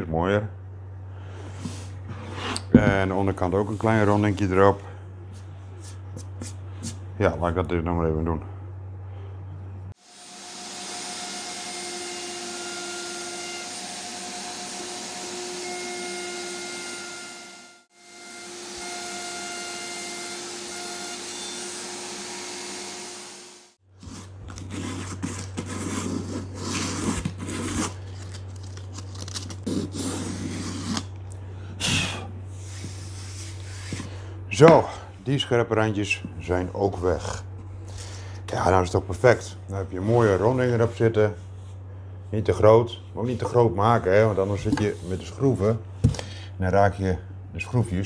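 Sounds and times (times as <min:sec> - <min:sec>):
router whining cutting wood: 0:10.0 - 0:23.8.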